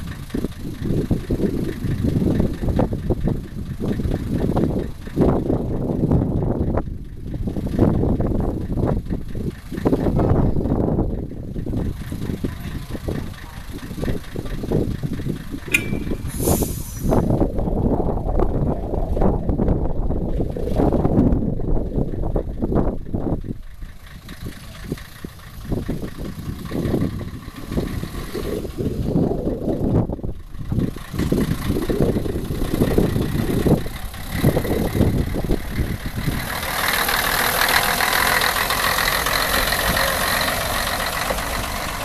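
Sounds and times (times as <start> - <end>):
diesel railcar engine pulsing: 0.0 - 42.0
railcar rushing past: 15.6 - 17.6.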